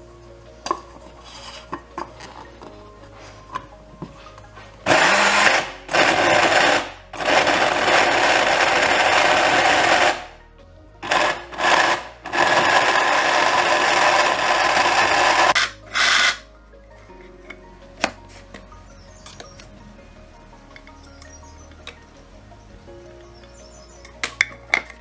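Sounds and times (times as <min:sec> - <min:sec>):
electric blade grinder whirring: 0:04.9 - 0:10.3, 0:11.0 - 0:16.4.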